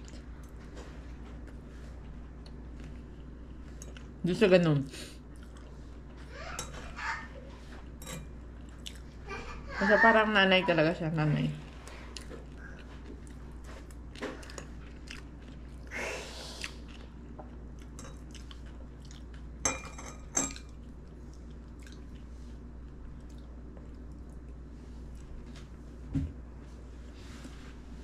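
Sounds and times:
person chewing food: 5.3 - 6.3, 7.8 - 9.2, 11.8 - 15.9, 16.5 - 19.6, 20.5 - 25.4
utensil clinking against dish: 8.0 - 8.4, 19.6 - 20.6.

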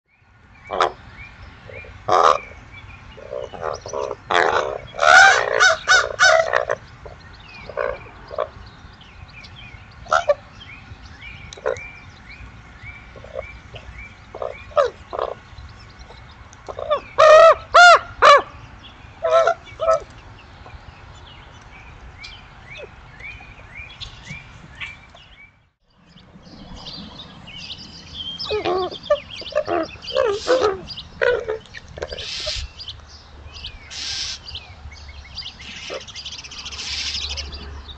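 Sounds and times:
ravens calling: 0.7 - 8.6, 10.0 - 10.6, 11.5 - 12.0, 13.0 - 20.8, 28.3 - 33.0, 33.8 - 34.8, 35.4 - 37.7.

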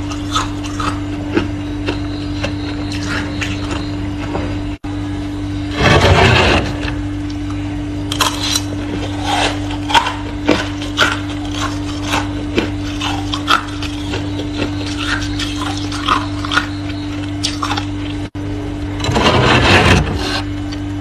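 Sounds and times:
steady low hum: 0.0 - 21.0
frost crackling and crunching: 5.7 - 18.3.

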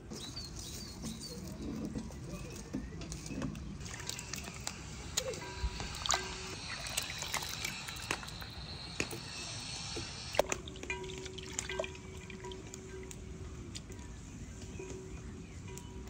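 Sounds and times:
brine dripping and trickling: 3.7 - 15.9.

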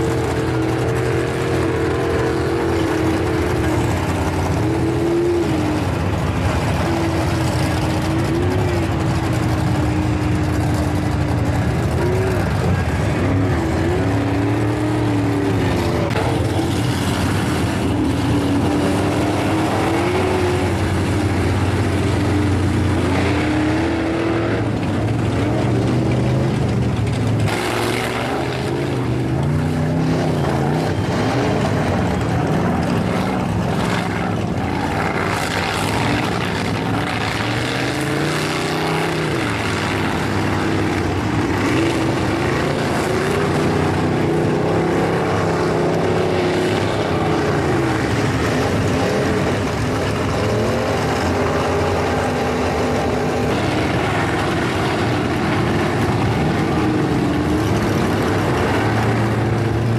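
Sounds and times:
truck engines revving: 0.0 - 59.9.

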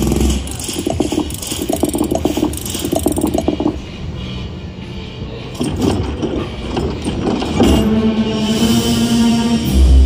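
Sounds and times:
slot machine ratcheting clicks: 0.0 - 3.8.

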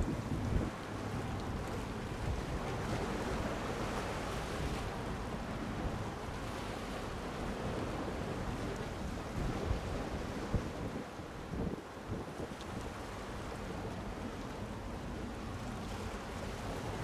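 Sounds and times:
wind buffeting microphone: 0.0 - 0.8.

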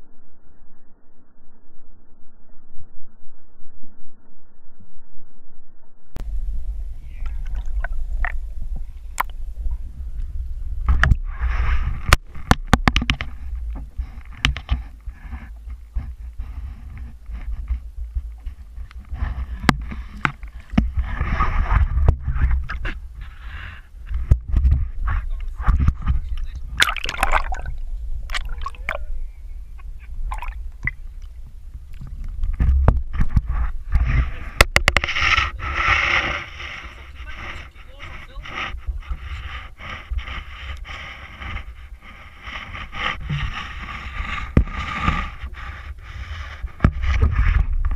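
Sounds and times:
low rumble: 0.0 - 47.9
water sloshing and gurgling: 6.3 - 47.9
sharp knocks and clicks: 12.1 - 13.4, 34.6 - 35.4
seawater sloshing and splashing: 26.7 - 29.0, 30.2 - 31.0.

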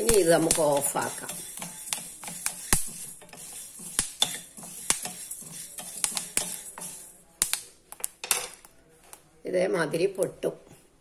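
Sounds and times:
seeds rattling in a pan: 0.0 - 7.2
wooden spatula stirring: 0.0 - 7.7.

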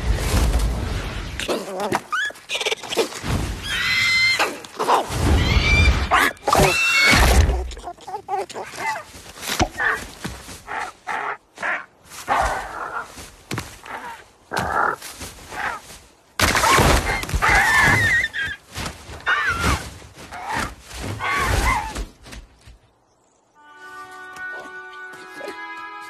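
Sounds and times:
thuds scrapes and rustling: 8.6 - 10.9, 12.0 - 22.9.

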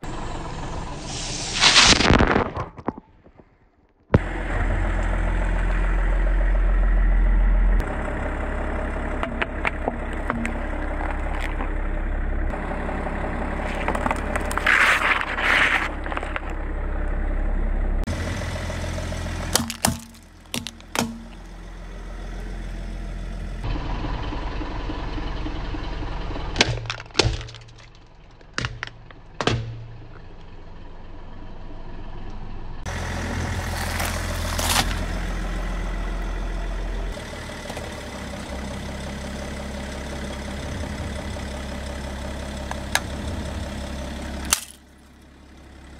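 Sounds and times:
car engine idling: 0.0 - 1.4, 4.2 - 45.9
tyre crushing plastic objects: 19.4 - 21.4, 26.6 - 30.2, 33.7 - 35.0, 44.5 - 44.8.

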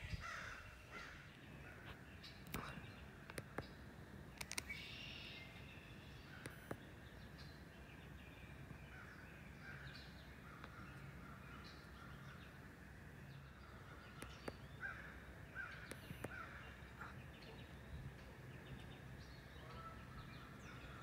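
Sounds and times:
birds chirping: 0.0 - 21.0
soft clicks: 2.4 - 3.7, 4.3 - 4.8.

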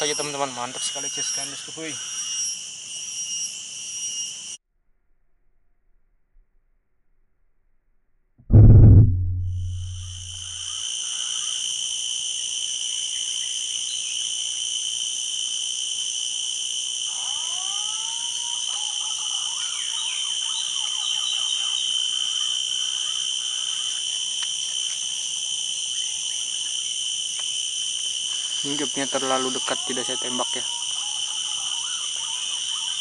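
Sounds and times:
insects buzzing: 0.0 - 4.6, 9.8 - 33.0
whistled bird calls: 17.6 - 23.8.

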